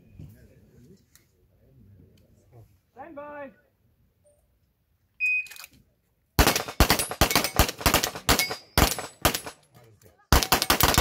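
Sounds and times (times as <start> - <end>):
rapid handgun fire: 6.4 - 9.6, 10.3 - 11.0.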